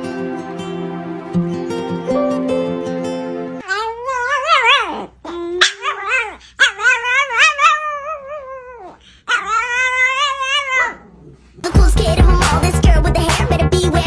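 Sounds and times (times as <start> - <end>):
small dog howling: 3.6 - 11.2.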